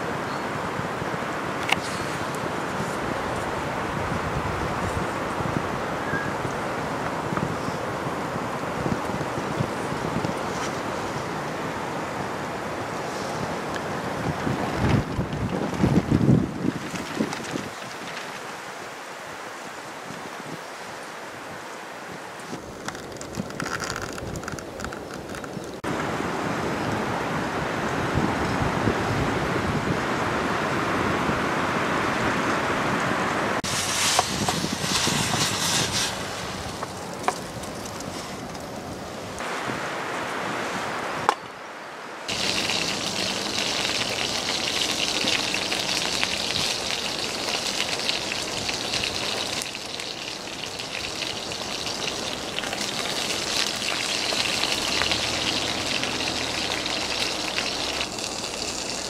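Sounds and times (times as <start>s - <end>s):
food sizzling in a frying pan: 33.6s - 36.2s, 42.3s - 59.0s.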